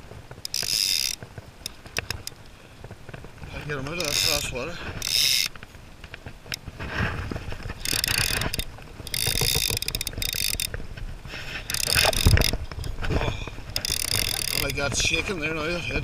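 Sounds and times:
fly reel ratchet buzzing: 0.4s - 2.4s, 4.0s - 5.6s, 7.8s - 10.8s, 11.6s - 12.6s, 13.8s - 14.8s.

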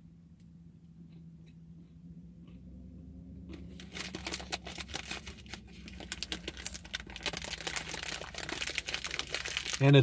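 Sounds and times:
plastic wrapper crinkling: 3.7s - 10.0s.

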